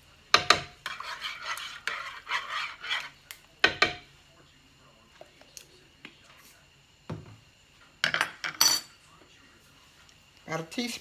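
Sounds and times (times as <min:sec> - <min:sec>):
spoon scraping and stirring: 0:00.4 - 0:04.1.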